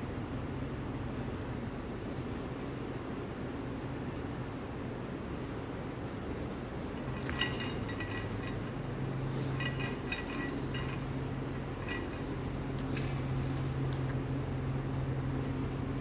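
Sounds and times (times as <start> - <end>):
steady low hum: 0.0 - 16.0
metallic clinking and jingling: 6.3 - 13.2.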